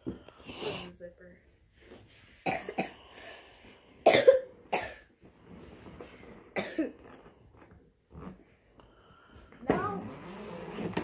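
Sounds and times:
person coughing: 2.5s - 3.1s, 4.0s - 5.1s, 6.6s - 7.0s.

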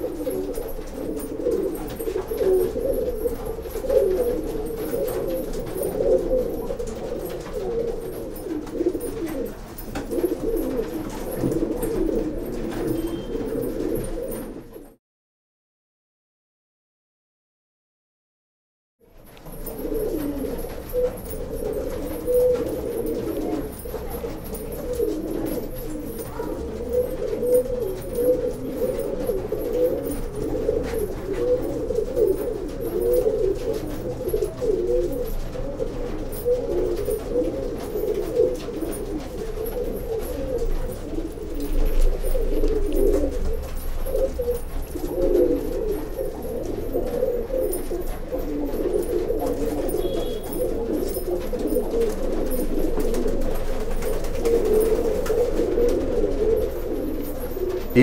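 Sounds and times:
pigeons cooing: 0.0s - 15.0s, 19.2s - 58.0s.

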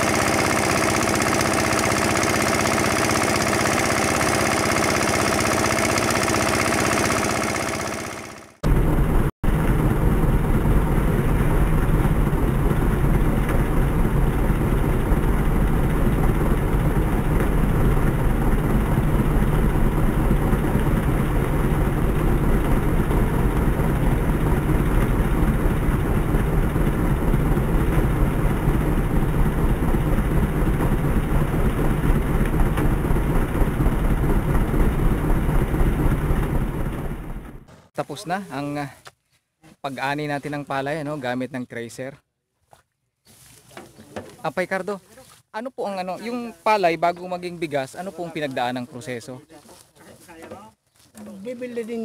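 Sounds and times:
small engine drone: 0.0s - 37.9s
threshing drum rushing: 8.6s - 37.9s.

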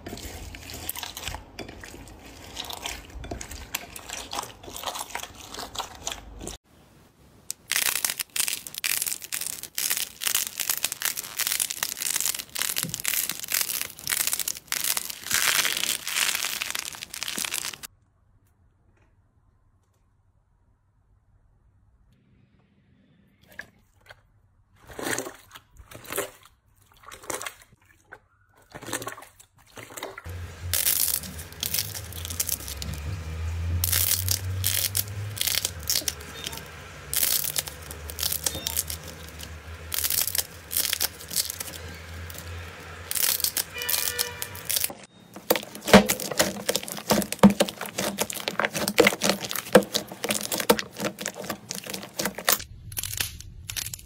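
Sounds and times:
slime squishing: 0.0s - 6.6s, 7.5s - 17.9s, 28.6s - 54.0s
slime tearing and crackling: 7.5s - 17.9s, 30.3s - 54.0s.

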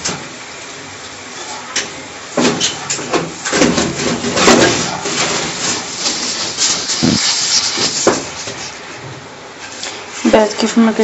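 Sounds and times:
palms rubbing semolina on a tray: 5.7s - 8.8s.

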